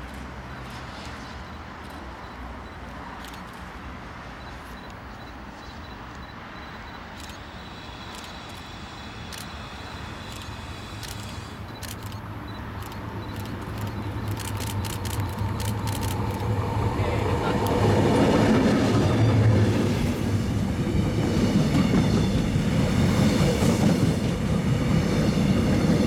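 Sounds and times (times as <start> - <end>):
diesel locomotive rumble: 4.5 - 26.0
sharp clicks: 10.3 - 16.6.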